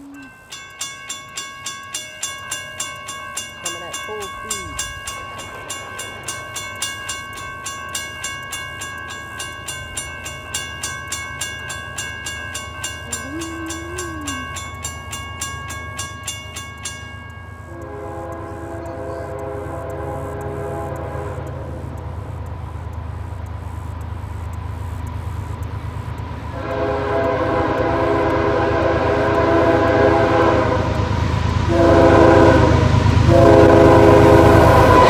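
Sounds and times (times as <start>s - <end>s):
crossing bell ringing: 0.0s - 23.2s
locomotive air horn: 17.7s - 21.8s, 26.5s - 31.1s, 31.7s - 35.0s.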